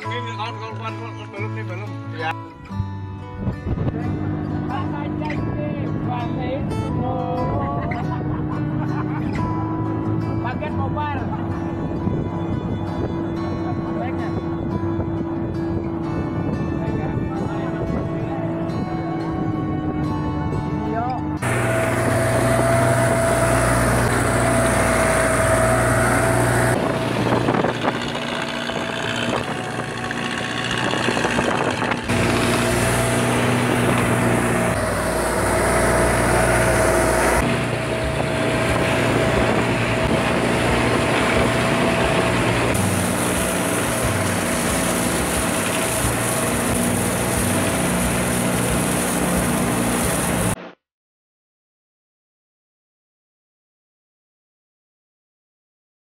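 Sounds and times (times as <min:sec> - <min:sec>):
boat engine humming: 0:02.8 - 0:50.6
water hissing along hull: 0:21.4 - 0:29.2, 0:30.2 - 0:50.6.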